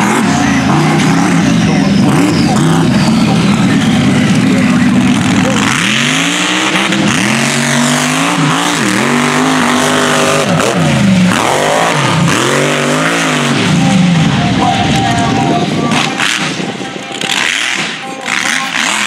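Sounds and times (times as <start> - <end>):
truck engine revving: 0.0 - 19.0.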